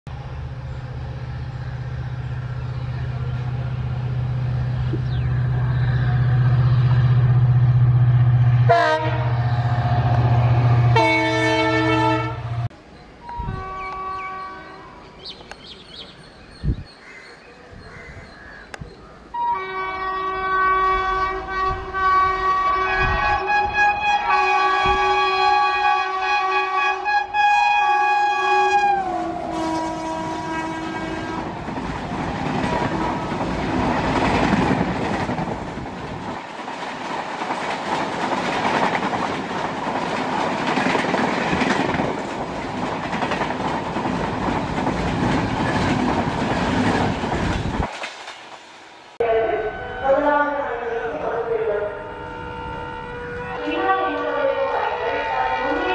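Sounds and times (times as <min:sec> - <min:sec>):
locomotive horn chord: 0:06.3 - 0:12.7, 0:13.3 - 0:15.0, 0:19.4 - 0:31.6, 0:51.8 - 0:55.9
train wheels clacking on rails: 0:31.3 - 0:48.7.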